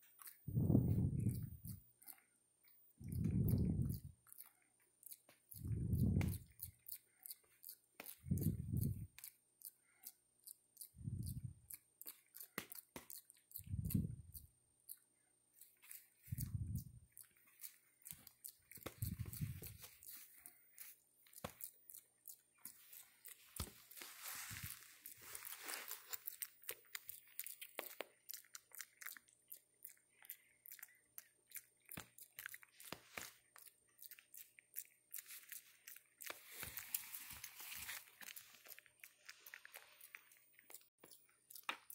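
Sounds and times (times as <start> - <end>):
rustling: 22.6 - 27.0, 35.2 - 40.9.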